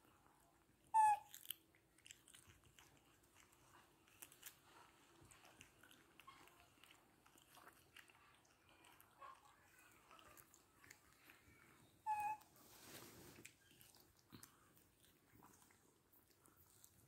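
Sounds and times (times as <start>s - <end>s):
monkeys chewing cucumber: 0.1s - 17.0s
monkey squeak: 0.9s - 1.3s, 12.1s - 12.4s.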